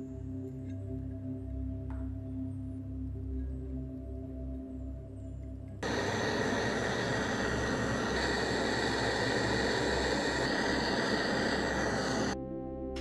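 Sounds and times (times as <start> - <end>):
power tool running: 5.8 - 12.4.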